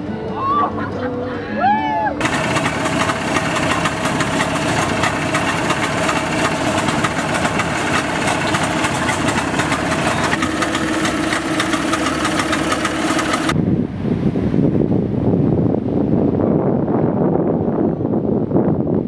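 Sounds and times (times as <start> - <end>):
engine idling with rough rattle: 2.2 - 13.6.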